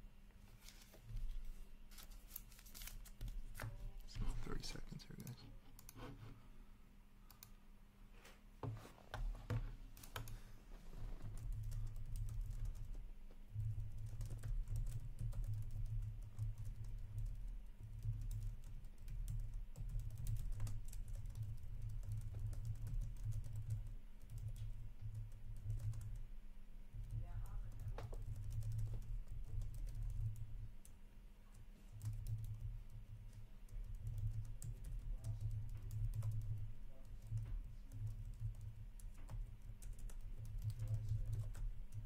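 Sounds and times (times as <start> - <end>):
computer keyboard typing: 7.3 - 7.6, 10.0 - 10.4, 11.3 - 26.3, 26.9 - 30.9, 31.8 - 42.0.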